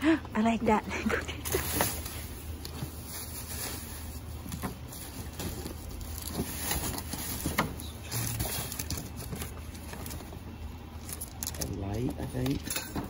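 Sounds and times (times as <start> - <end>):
steady low hum: 0.0 - 13.0
rustling cardboard and plastic bags: 0.5 - 13.0.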